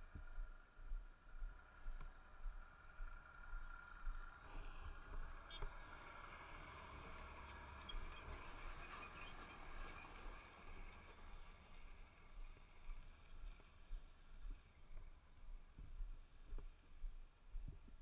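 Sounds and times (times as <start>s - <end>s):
motorcycle riding: 0.0s - 17.2s
truck passing by: 1.3s - 15.3s.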